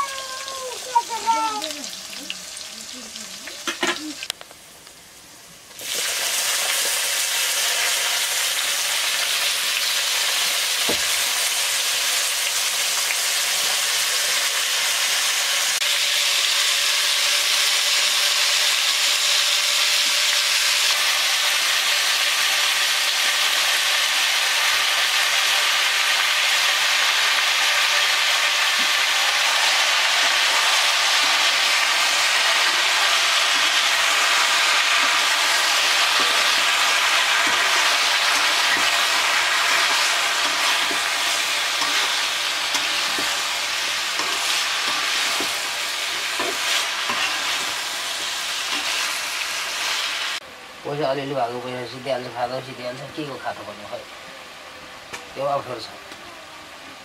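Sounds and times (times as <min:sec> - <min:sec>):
vegetables sizzling in hot oil: 0:00.0 - 0:57.0
metal spatula scraping a wok: 0:30.3 - 0:43.5, 0:44.1 - 0:49.2.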